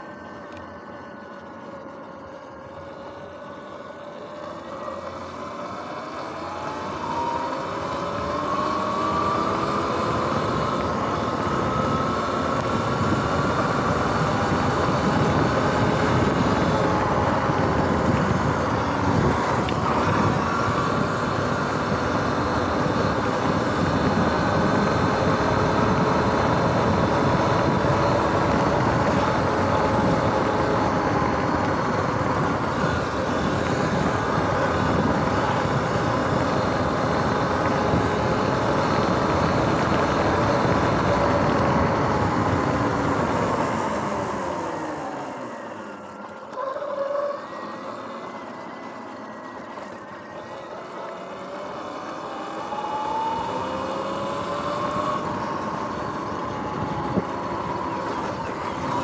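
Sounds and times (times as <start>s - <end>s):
electric motor whine: 0.0s - 59.0s
tyre noise on wet road: 0.0s - 59.0s
wind rush: 6.8s - 45.3s.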